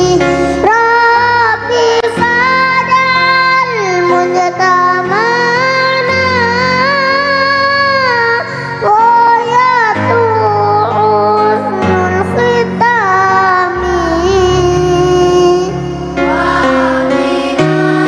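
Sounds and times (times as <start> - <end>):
child singing devotional song: 0.0 - 18.0
steady instrumental accompaniment: 11.6 - 18.0.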